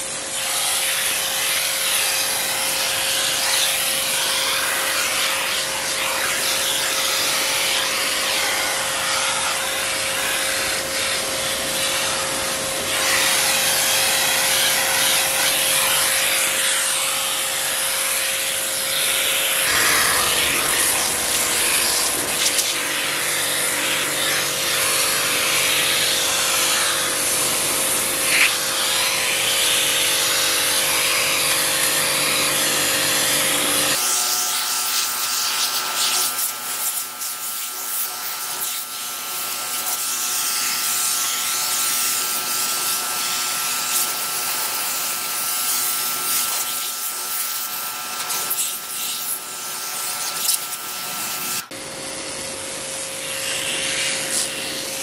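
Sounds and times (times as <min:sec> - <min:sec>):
washer motor hum: 0:00.0 - 0:55.0
pressure washer jet hissing: 0:00.1 - 0:29.7, 0:45.7 - 0:51.5.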